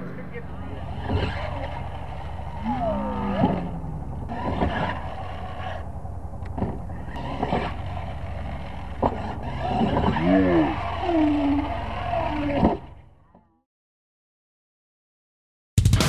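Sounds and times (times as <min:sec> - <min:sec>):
toy truck motor whining: 0:00.5 - 0:13.2.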